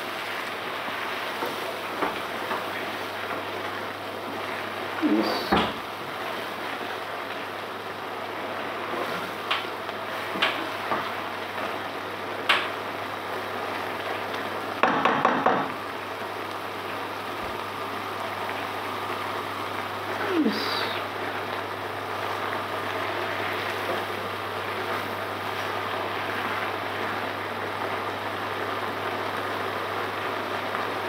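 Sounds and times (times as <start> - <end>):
curry bubbling and sizzling: 0.0 - 31.0
spatula knocking against pan: 14.8 - 15.7.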